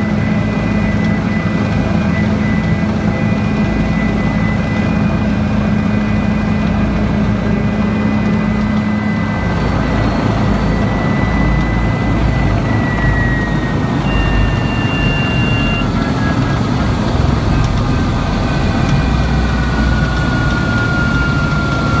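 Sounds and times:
helicopter engine and rotor: 0:00.0 - 0:22.0
high turbine whine: 0:00.0 - 0:22.0.

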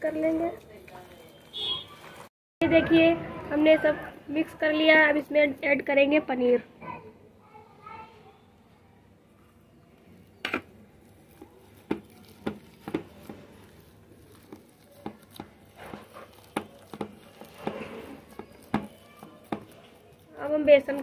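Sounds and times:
soft hand mixing noise: 0:00.0 - 0:06.2, 0:08.5 - 0:21.0.

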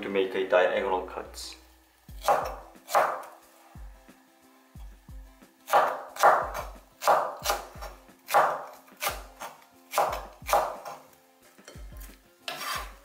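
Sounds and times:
knife chopping on wooden board: 0:02.2 - 0:03.3, 0:05.7 - 0:11.0, 0:11.6 - 0:13.0.

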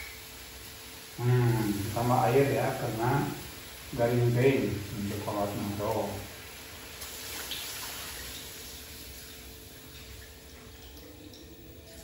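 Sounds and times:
liquid pouring and splashing: 0:04.8 - 0:12.0.

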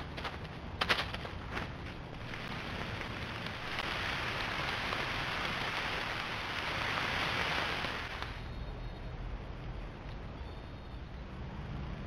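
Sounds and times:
rain falling on woods: 0:00.0 - 0:08.4.

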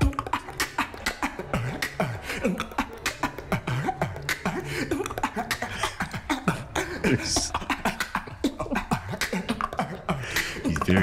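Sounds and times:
beatboxing bass notes: 0:00.0 - 0:11.0
beatboxing clicks and snares: 0:00.0 - 0:11.0.

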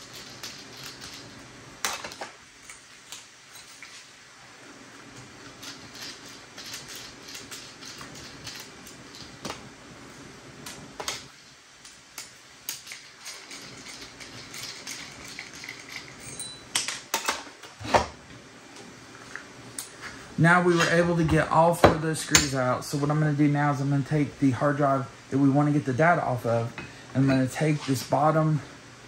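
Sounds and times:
screws clinking on metal: 0:12.7 - 0:17.3.

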